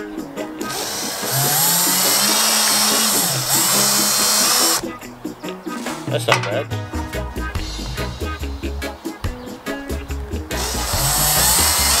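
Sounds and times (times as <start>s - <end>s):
cordless drill boring plastic: 0.7s - 4.8s, 10.6s - 12.0s.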